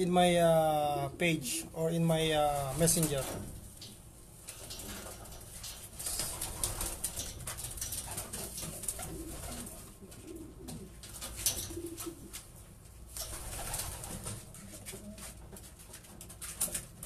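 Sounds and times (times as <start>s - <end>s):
wings flapping: 4.5s - 12.5s, 13.1s - 16.9s
pigeons cooing: 4.6s - 12.4s.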